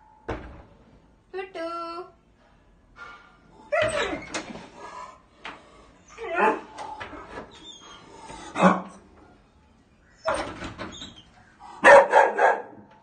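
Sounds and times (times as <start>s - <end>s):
dog barking: 11.8s - 12.8s.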